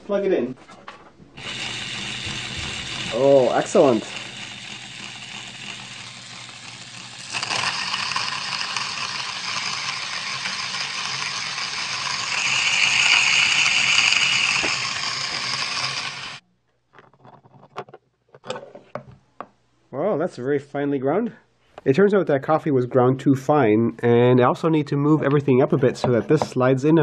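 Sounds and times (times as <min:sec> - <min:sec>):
coffee beans crunching: 0:01.4 - 0:16.4
coffee grinder motor humming: 0:01.4 - 0:16.4.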